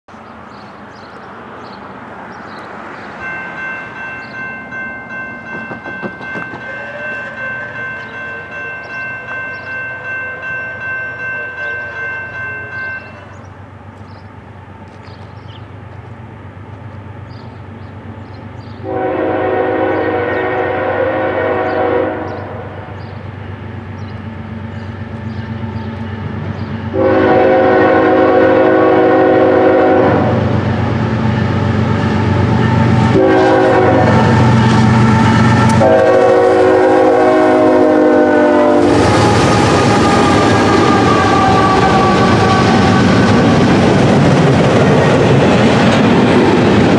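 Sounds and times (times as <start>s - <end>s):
locomotive engine rumble: 0.2s - 46.9s
bell ringing: 3.2s - 13.4s
air horn blasts: 18.8s - 22.9s, 26.9s - 30.4s, 33.0s - 43.4s.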